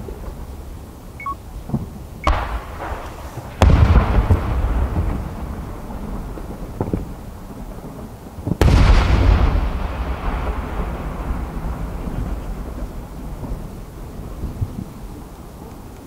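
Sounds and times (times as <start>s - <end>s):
low rolling echo: 0.0s - 15.8s.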